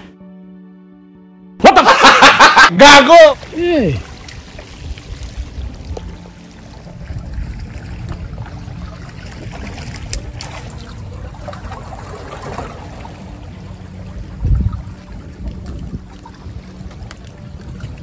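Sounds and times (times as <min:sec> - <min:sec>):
water splashing against rocks: 0:02.8 - 0:13.4.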